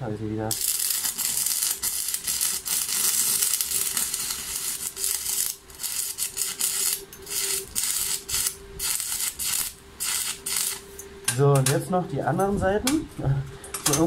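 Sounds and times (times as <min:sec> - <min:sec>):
welding arc crackling and hissing: 0:00.2 - 0:11.0.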